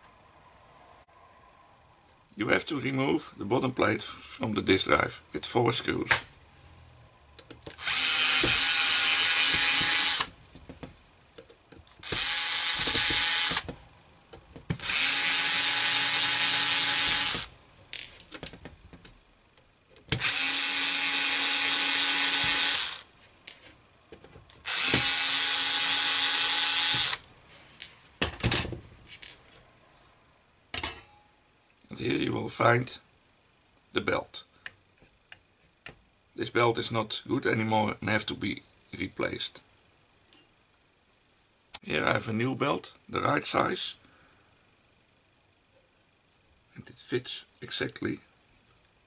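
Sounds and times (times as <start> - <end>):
electric screwdriver motor whine: 7.8 - 10.3, 12.0 - 13.6, 14.8 - 17.5, 20.2 - 23.1, 24.7 - 27.2.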